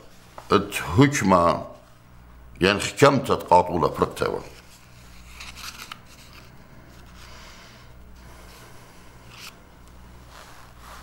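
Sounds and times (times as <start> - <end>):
low electrical hum: 0.0 - 11.0
faint rustles: 4.6 - 11.0.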